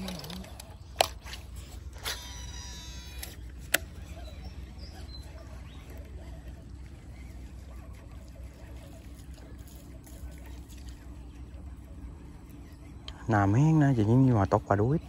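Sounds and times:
fishing reel whining: 0.0 - 7.7
low steady rumble: 0.0 - 15.0.

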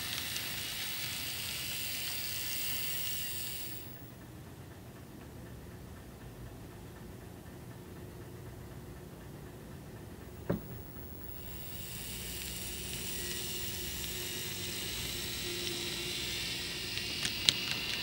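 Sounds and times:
steady hiss: 0.0 - 4.1, 10.4 - 18.0
model train running hum: 0.0 - 18.0.

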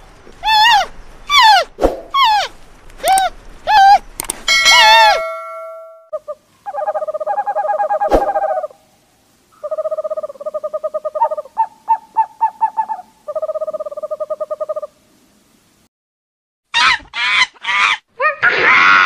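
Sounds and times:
sharp click: 4.2 - 4.5
owl trilled hoots: 6.1 - 8.8, 9.5 - 14.9.

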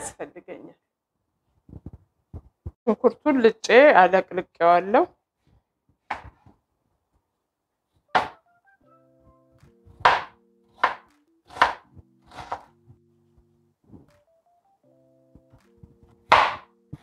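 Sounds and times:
soft background music: 8.1 - 17.0
knife chopping onion on board: 9.9 - 12.7, 16.1 - 17.0.

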